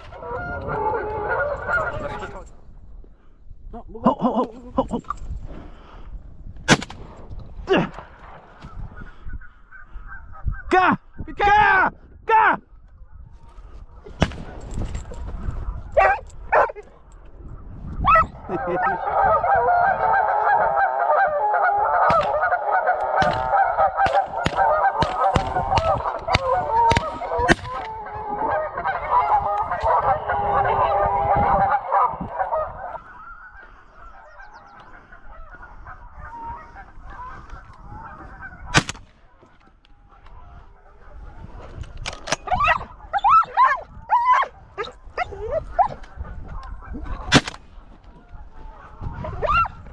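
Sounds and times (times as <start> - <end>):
geese honking: 0.0 - 2.4, 18.1 - 41.3
sharp cracks: 6.7 - 7.2, 23.2 - 28.0, 38.7 - 39.2, 47.2 - 47.7.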